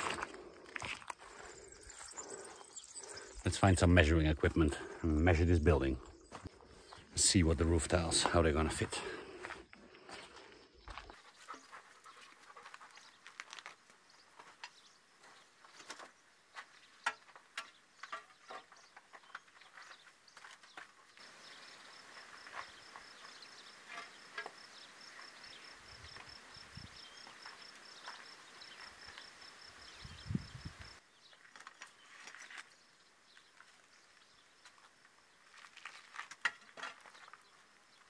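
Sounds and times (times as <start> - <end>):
insect chirping: 0.1 - 7.1, 14.0 - 36.1
clay roof tiles clinking: 17.0 - 21.0, 35.8 - 37.5.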